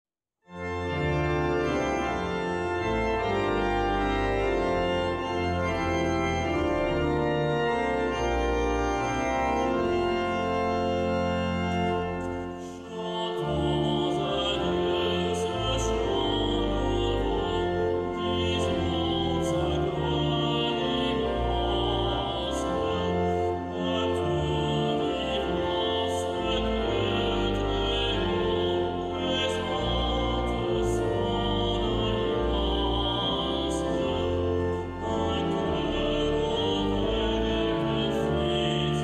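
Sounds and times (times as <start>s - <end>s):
church organ chords: 0.5s - 39.0s
solo voice singing: 12.9s - 23.1s.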